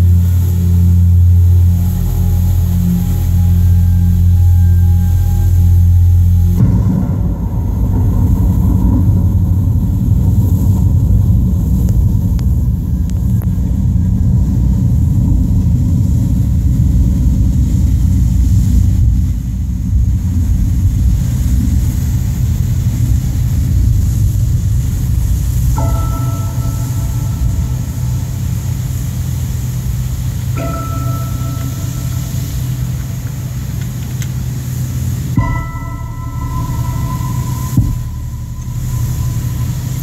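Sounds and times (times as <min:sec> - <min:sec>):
tonal music: 0:00.0 - 0:10.7, 0:25.8 - 0:40.0
deep rumble over loudspeakers: 0:00.0 - 0:40.0.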